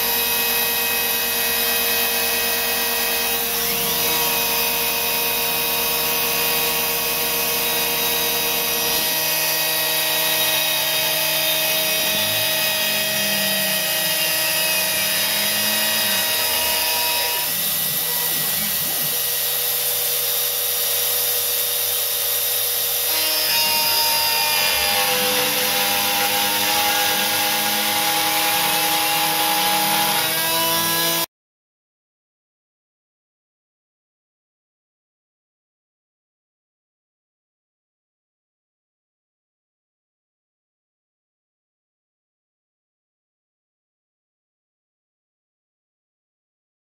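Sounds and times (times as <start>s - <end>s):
milling machine spindle whine: 0.0s - 30.8s.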